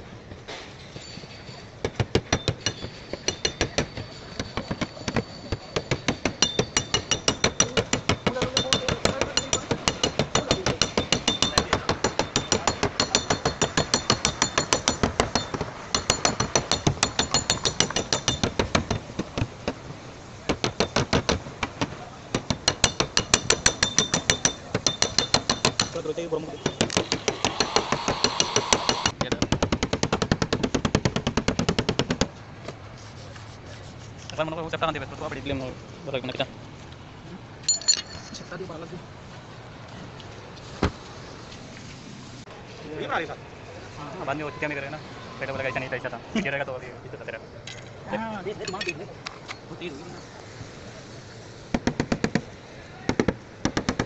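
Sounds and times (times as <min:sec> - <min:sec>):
faint high ringing: 0:00.8 - 0:18.5, 0:37.6 - 0:38.8
hammer tapping wooden block: 0:01.8 - 0:19.8, 0:20.5 - 0:26.0, 0:26.6 - 0:32.3.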